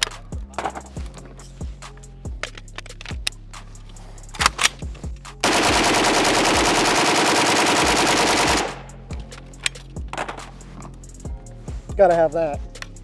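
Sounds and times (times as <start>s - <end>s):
sharp rifle clacks: 4.4s - 10.6s
rifle firing full auto: 5.4s - 8.9s.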